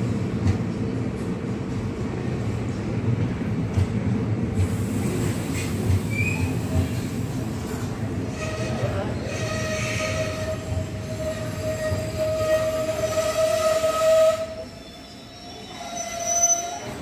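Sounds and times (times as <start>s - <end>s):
train rumbling: 0.0s - 17.0s
train whine: 4.6s - 17.0s.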